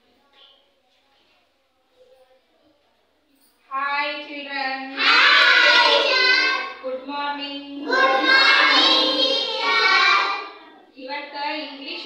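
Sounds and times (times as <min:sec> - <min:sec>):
young children singing in unison: 0:04.9 - 0:06.8, 0:07.8 - 0:10.7.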